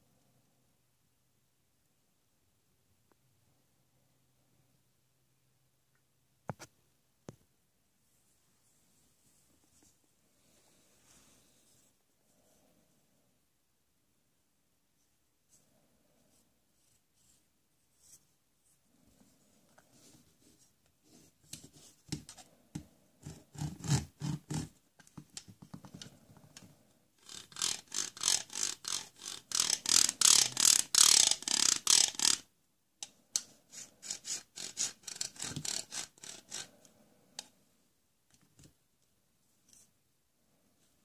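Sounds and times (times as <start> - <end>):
toy saw scraping plastic: 23.2 - 24.8, 27.2 - 32.5, 33.4 - 36.8.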